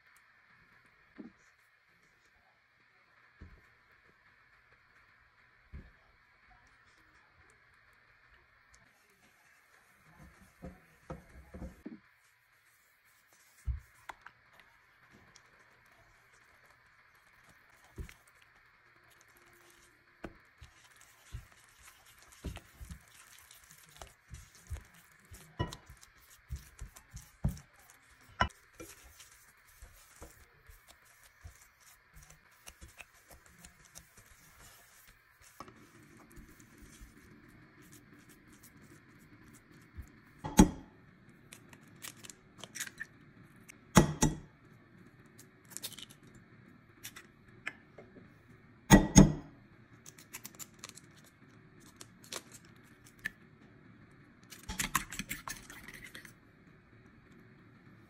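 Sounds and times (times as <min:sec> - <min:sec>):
spatula scraping dough in pot: 0:19.2 - 0:39.9.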